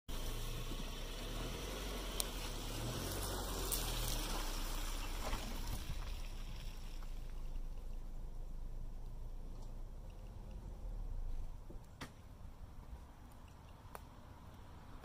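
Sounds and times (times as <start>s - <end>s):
car driving past on grass: 0.1s - 11.7s.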